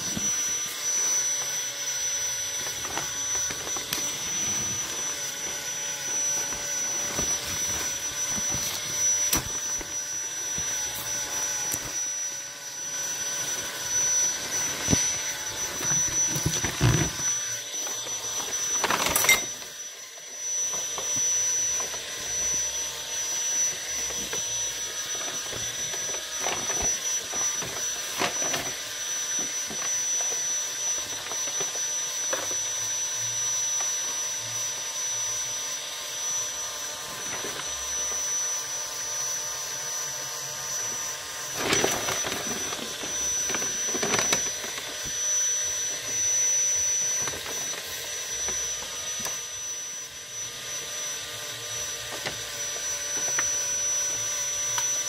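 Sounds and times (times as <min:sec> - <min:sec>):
thin high whine: 0:00.0 - 0:28.8.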